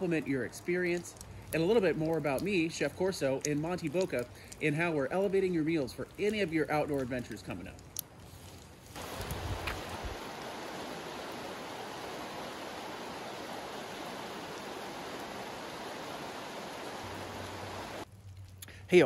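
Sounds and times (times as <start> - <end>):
creek rushing over stones: 8.8 - 18.1.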